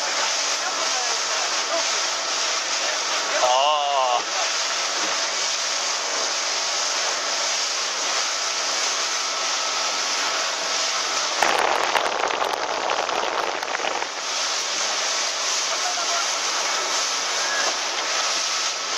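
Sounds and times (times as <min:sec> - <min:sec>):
splashing spray: 0:00.0 - 0:18.9
water rushing along hull: 0:00.0 - 0:18.9
low motor hum: 0:10.5 - 0:15.3.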